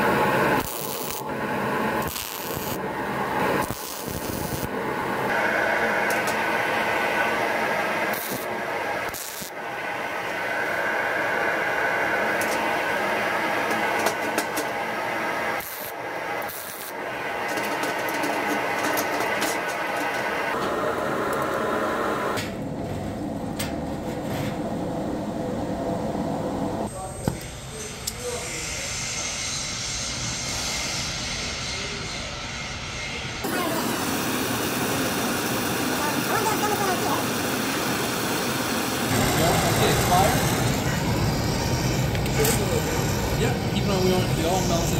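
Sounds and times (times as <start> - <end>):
gas torch flame hissing: 0.0 - 20.6, 33.4 - 44.9
machinery whirring: 0.0 - 44.9.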